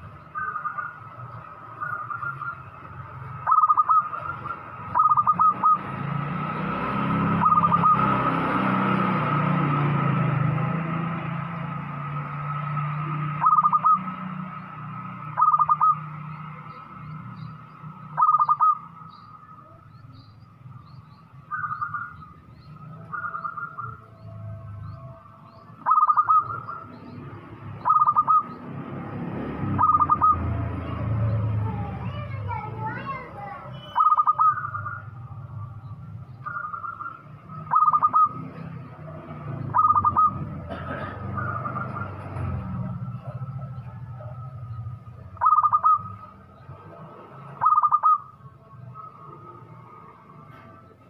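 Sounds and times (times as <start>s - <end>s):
small birds chirping: 0.0s - 51.0s
dove cooing: 3.4s - 5.9s, 13.4s - 14.2s, 15.3s - 16.1s, 18.2s - 18.9s, 25.8s - 27.0s, 27.8s - 28.5s, 29.8s - 30.6s, 33.8s - 35.1s, 36.4s - 38.7s, 39.7s - 42.1s, 45.4s - 46.3s, 47.6s - 48.3s.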